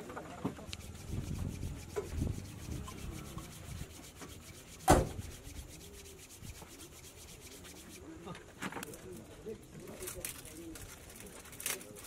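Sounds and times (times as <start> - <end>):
rubbing and rustling handling noise: 0.0 - 12.0
sharp knock: 4.8 - 5.3.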